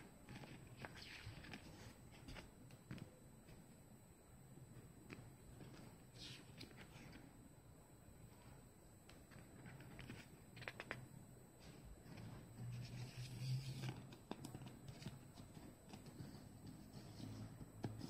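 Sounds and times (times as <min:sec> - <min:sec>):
faint low hum: 0:00.0 - 0:18.0
paper booklet rustling: 0:08.4 - 0:11.0.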